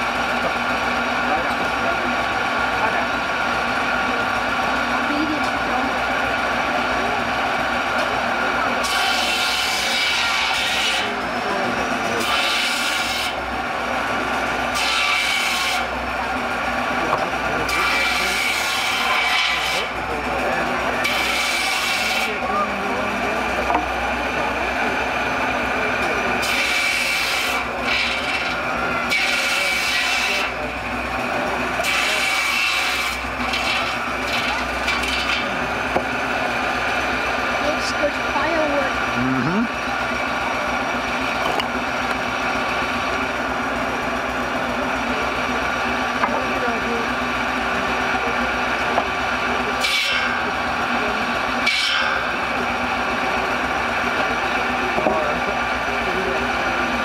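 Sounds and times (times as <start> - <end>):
circular saw blade whining: 0.0 - 57.0
saw cutting logs: 0.0 - 57.0
saw blade rasping through log: 8.8 - 13.4, 14.5 - 16.0, 17.5 - 20.1, 20.9 - 22.6, 26.3 - 30.8, 31.7 - 36.1, 49.7 - 52.6.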